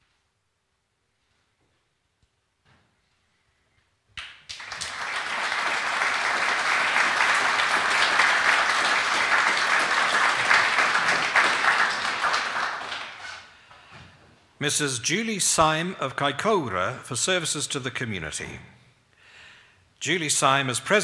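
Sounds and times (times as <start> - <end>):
audience applauding: 4.2 - 13.5.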